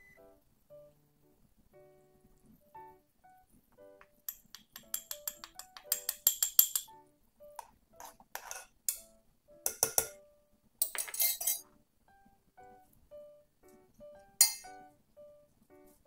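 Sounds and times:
soft piano music: 0.0s - 16.0s
glass dish clinking on spoon: 4.3s - 6.9s, 8.4s - 9.0s, 9.7s - 10.2s, 10.8s - 11.6s, 14.4s - 14.7s
ladle scraping metal saucepan: 8.0s - 9.0s, 11.0s - 11.6s.

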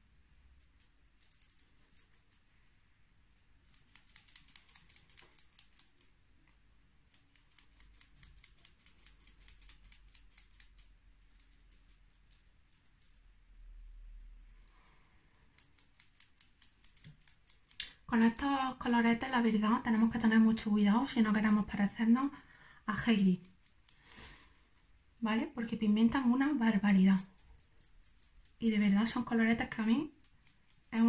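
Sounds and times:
makeup brush bristle strokes: 14.6s - 31.0s.

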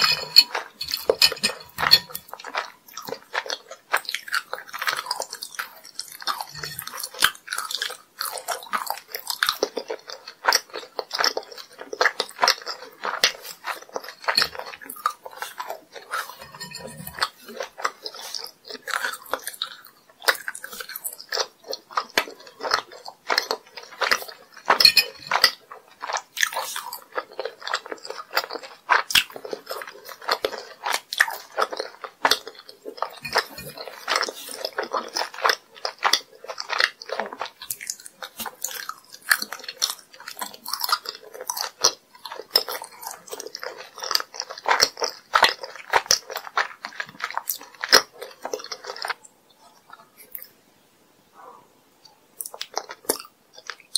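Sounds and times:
chewing crunchy candies: 0.0s - 50.6s, 51.4s - 53.9s.

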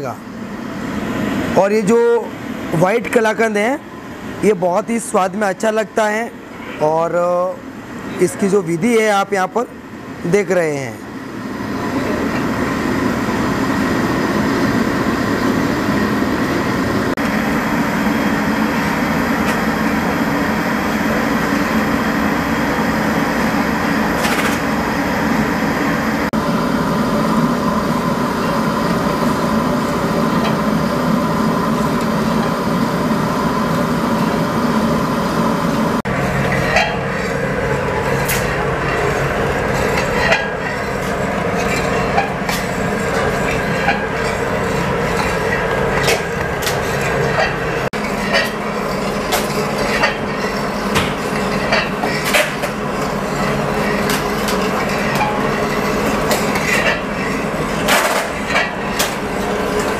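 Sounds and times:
stove burning: 9.6s - 59.9s
metal rod scraping a pan: 38.0s - 58.7s.

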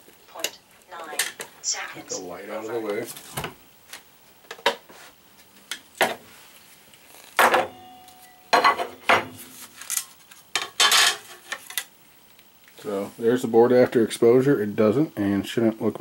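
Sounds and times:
glass plates clinking and knocking: 7.4s - 9.4s, 10.6s - 11.3s.

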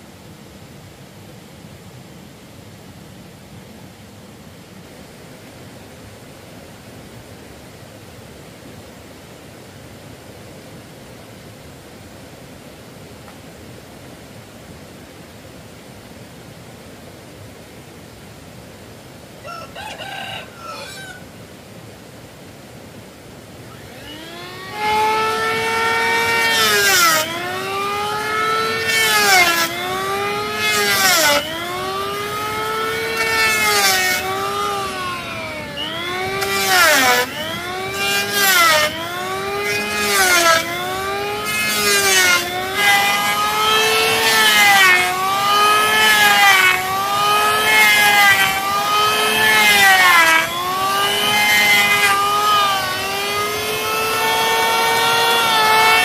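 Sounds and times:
electric planer motor whine: 23.6s - 56.0s
planer blades rasping wood: 23.7s - 56.0s.

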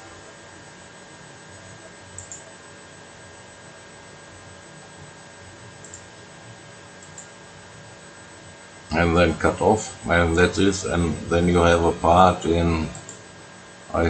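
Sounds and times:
low hum and hiss: 0.0s - 14.0s
faint clicks: 2.2s - 2.4s, 5.8s - 6.1s.

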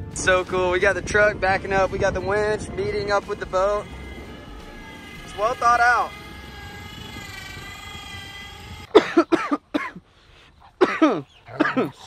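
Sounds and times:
electric winch whining: 0.5s - 9.7s
man coughing hard: 8.9s - 10.0s, 10.8s - 12.0s.

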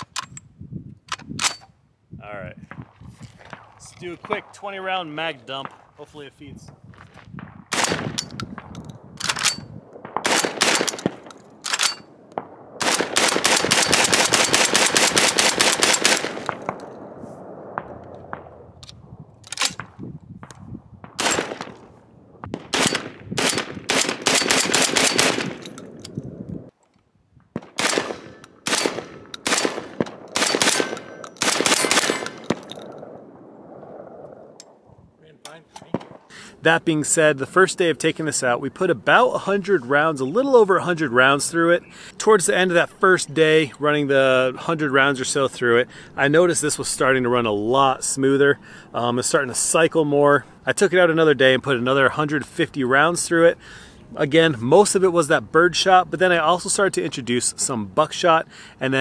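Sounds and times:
shotgun firing rapidly: 7.7s - 8.2s, 10.0s - 11.3s, 12.8s - 16.6s, 21.2s - 21.6s, 22.6s - 25.6s, 27.7s - 32.6s.

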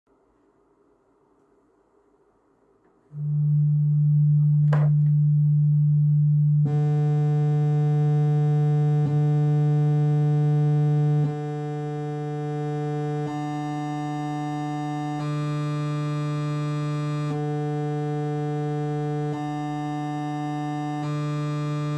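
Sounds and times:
low electronic tone: 3.1s - 14.8s.

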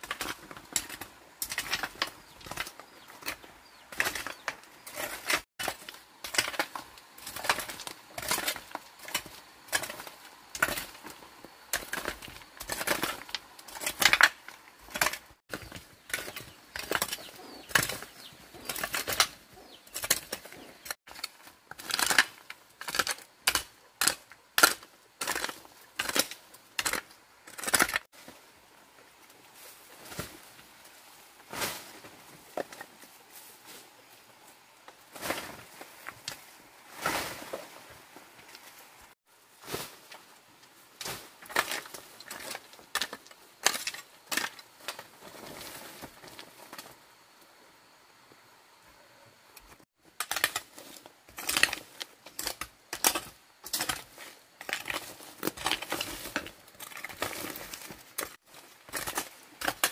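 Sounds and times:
hand hoe scraping dry stony dirt: 0.0s - 28.4s, 39.6s - 46.9s, 49.7s - 59.9s.

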